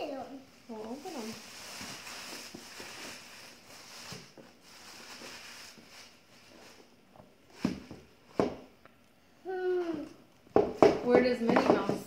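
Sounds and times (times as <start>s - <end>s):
plastic bag rustling: 0.6s - 8.4s
box knocking on tabletop: 10.5s - 12.0s.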